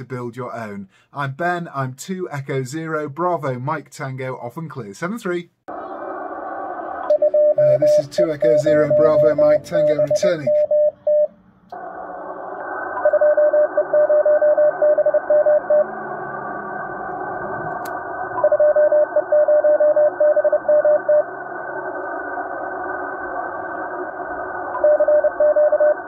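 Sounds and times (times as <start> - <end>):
radio receiver hiss: 5.7 - 10.8, 11.6 - 19.0, 20.4 - 26.0
morse code tone: 7.1 - 11.3, 13.0 - 15.9, 18.4 - 21.2.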